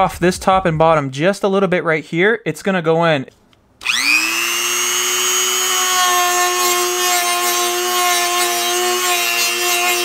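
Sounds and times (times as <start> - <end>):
power tool grinding: 3.8 - 10.0.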